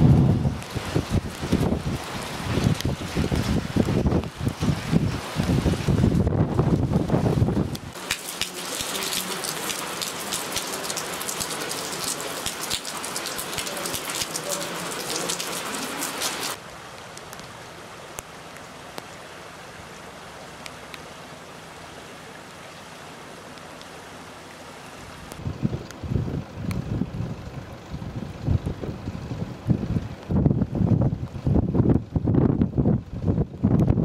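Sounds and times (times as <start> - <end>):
rain pattering on hard surfaces: 0.0 - 24.6, 25.2 - 26.0
steady hiss with drops: 0.0 - 25.5.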